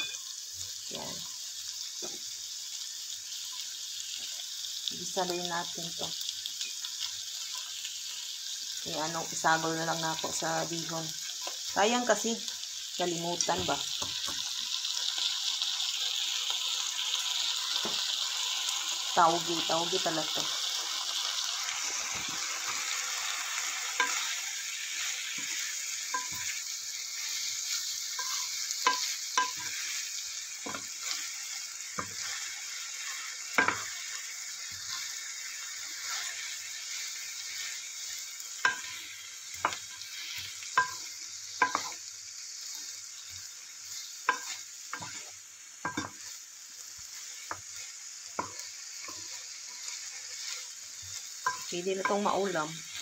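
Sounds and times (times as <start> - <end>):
vegetables sizzling in oil: 0.0 - 53.0
wooden spatula knocking a pan: 28.2 - 29.8, 41.6 - 42.0.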